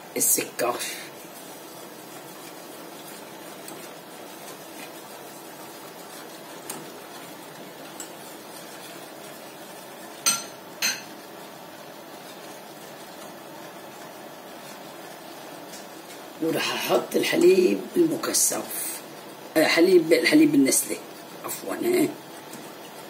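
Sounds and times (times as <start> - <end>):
metal whisk stirring milk: 0.3 - 11.1.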